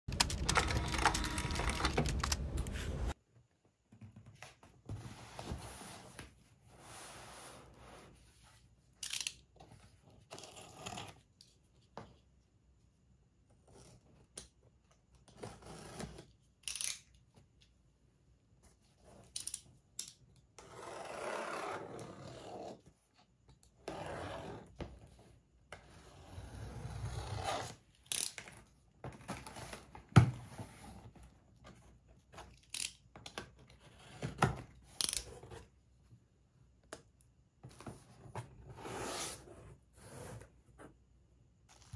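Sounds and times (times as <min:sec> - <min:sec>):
clicks: 0:00.1 - 0:03.2.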